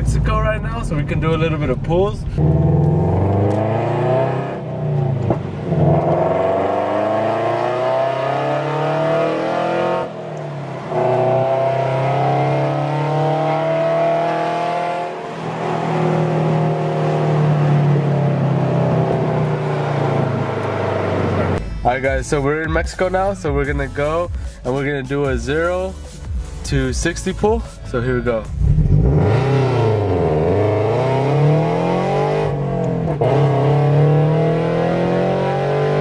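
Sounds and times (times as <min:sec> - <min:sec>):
car engine accelerating: 0:00.0 - 0:21.6, 0:28.3 - 0:36.0.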